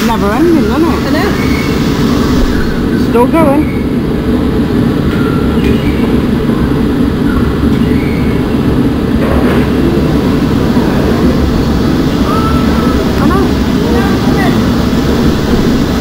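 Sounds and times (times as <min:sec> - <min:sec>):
machinery rumbling: 0:00.0 - 0:16.0
faint voices: 0:10.5 - 0:16.0.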